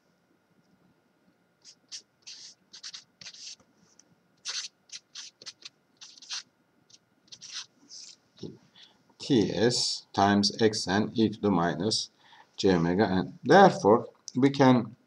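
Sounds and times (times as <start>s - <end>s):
marker scratching on paper: 1.6s - 3.6s, 4.4s - 6.5s, 7.3s - 8.2s.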